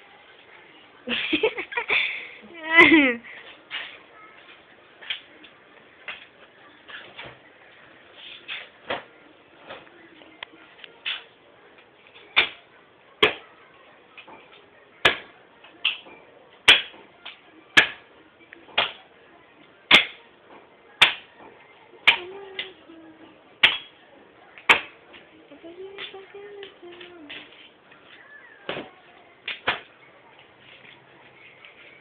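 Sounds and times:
axe chopping wood: 0:15.0 - 0:15.3, 0:16.7 - 0:17.0, 0:17.8 - 0:18.0, 0:19.9 - 0:20.2, 0:21.0 - 0:21.2, 0:24.7 - 0:24.9.

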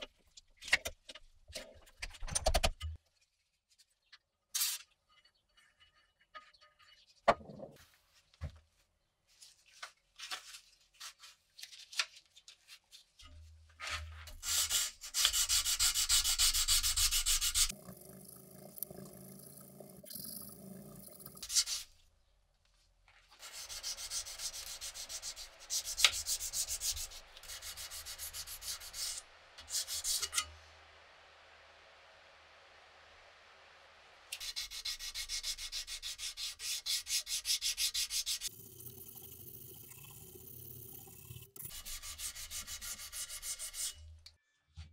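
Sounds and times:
sandpaper rubbing on metal: 0:14.4 - 0:17.7, 0:23.4 - 0:30.4, 0:34.4 - 0:38.5, 0:41.6 - 0:44.0.

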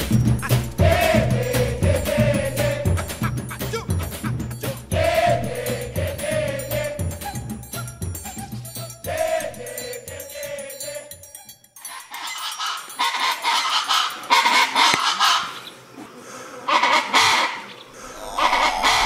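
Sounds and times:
harsh bird calls: 0:11.9 - 0:19.0.

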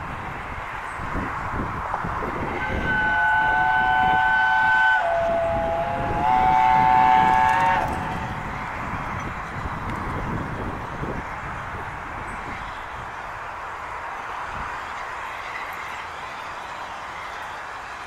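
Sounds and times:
train running gear rumbling: 0:00.0 - 0:18.0
steam locomotive whistle: 0:02.5 - 0:08.3
locomotive exhaust beats: 0:02.5 - 0:10.2.

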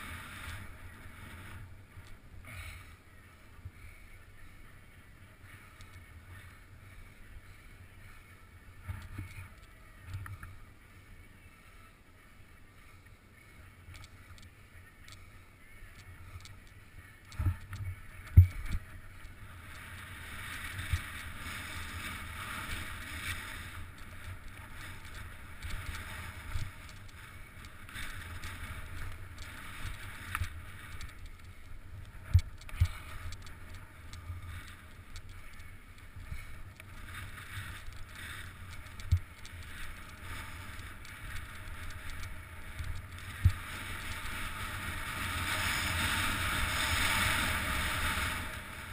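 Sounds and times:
skis scraping over snow: 0:00.0 - 0:04.0, 0:17.4 - 0:48.9.

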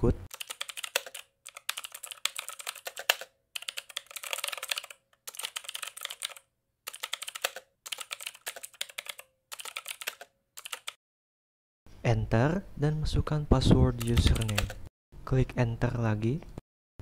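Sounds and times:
computer keyboard typing: 0:00.3 - 0:11.0, 0:14.0 - 0:14.8.

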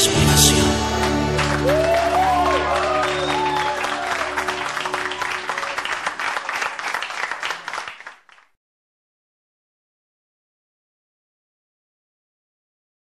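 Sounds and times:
audience applause: 0:00.0 - 0:08.5.

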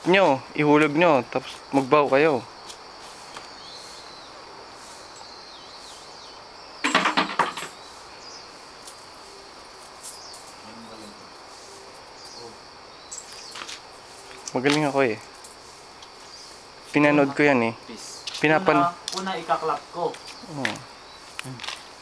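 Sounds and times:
insects droning: 0:00.0 - 0:22.0
coins clinking into wooden box: 0:06.8 - 0:07.8.

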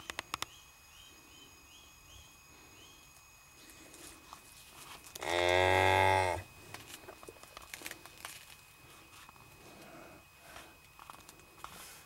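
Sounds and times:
cow mooing: 0:05.2 - 0:06.4.

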